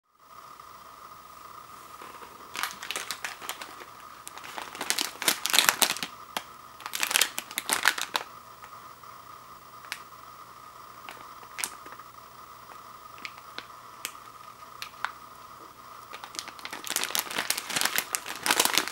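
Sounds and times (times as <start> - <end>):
faint steady whine: 0.0 - 18.9
foil packet crinkling: 1.9 - 8.3, 11.0 - 12.1, 13.2 - 15.2, 16.0 - 18.9.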